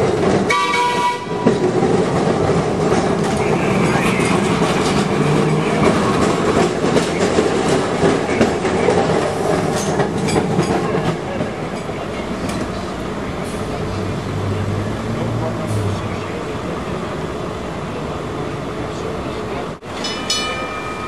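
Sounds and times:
streetcar wheels rattling on rails: 0.0s - 21.0s.

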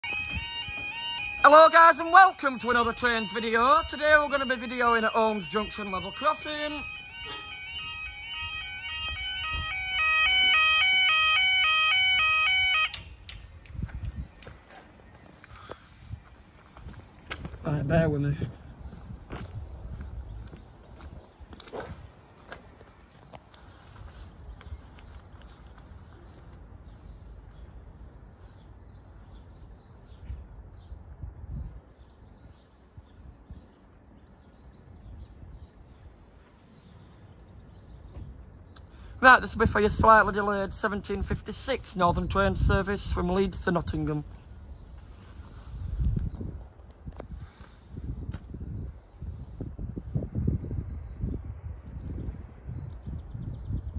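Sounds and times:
two-tone level crossing alarm: 0.0s - 13.2s.

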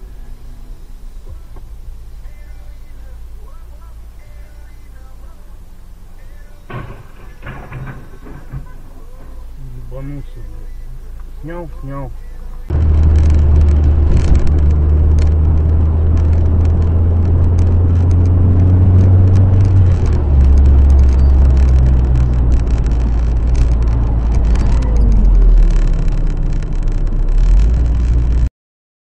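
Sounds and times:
car engine and road noise: 0.0s - 28.5s
small clicks and rattles: 12.9s - 28.5s.

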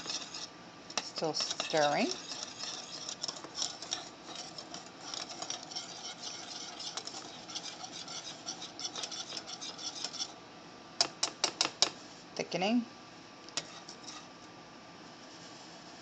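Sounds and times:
whisk scraping a saucepan: 0.0s - 10.4s, 13.6s - 14.4s.

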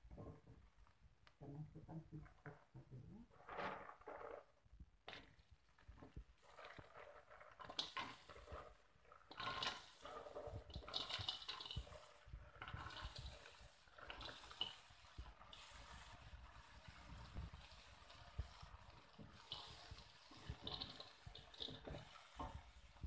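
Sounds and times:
snail shells clattering on metal: 10.7s - 11.9s.

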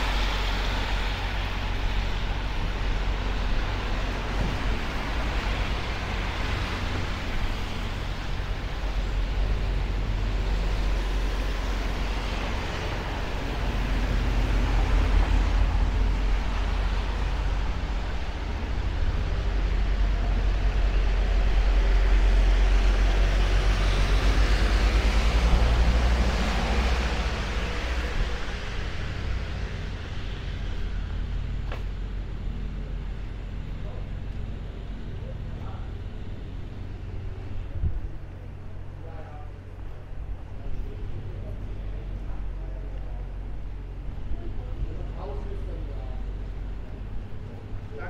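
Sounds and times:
tyres hissing on wet asphalt: 0.0s - 37.8s
traffic low rumble: 0.0s - 48.0s.

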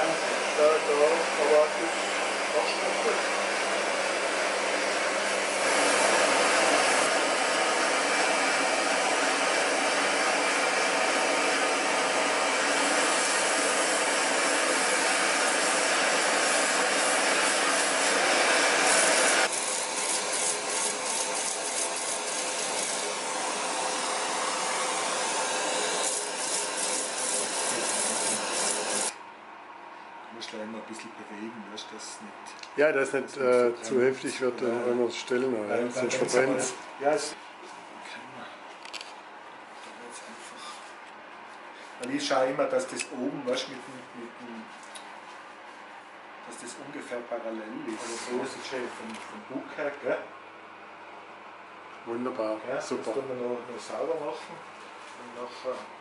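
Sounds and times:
wood on belt sander: 0.0s - 29.1s
wood on sanding disc: 5.8s - 29.1s.

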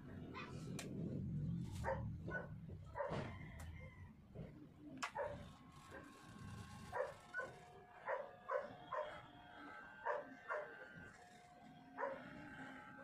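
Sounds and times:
dog barking: 1.8s - 3.3s, 5.1s - 5.5s, 6.9s - 9.3s, 10.0s - 10.9s, 12.0s - 12.4s.

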